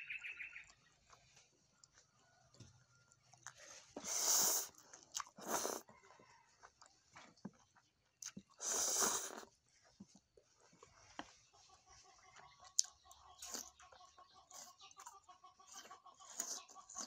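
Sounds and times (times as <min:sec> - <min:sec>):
wet chewing clicks: 0:03.1 - 0:10.4, 0:12.3 - 0:17.0
slurping noodles: 0:04.0 - 0:05.9, 0:08.5 - 0:09.6.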